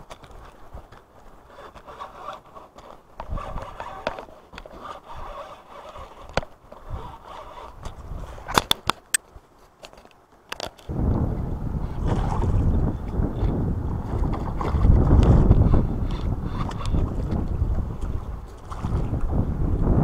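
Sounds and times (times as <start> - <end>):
fishing reel scraping: 1.4 - 8.6, 15.5 - 17.2
sharp reel clicks: 1.5 - 9.2.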